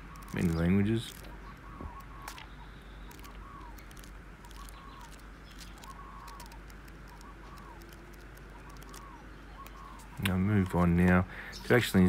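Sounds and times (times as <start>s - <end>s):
paper pages rustling: 0.0s - 2.5s, 3.1s - 10.1s
bird calling short notes: 0.0s - 11.7s.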